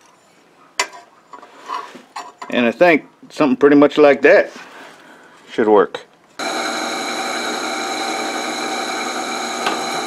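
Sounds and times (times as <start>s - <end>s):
drill press drilling steel: 6.4s - 10.0s.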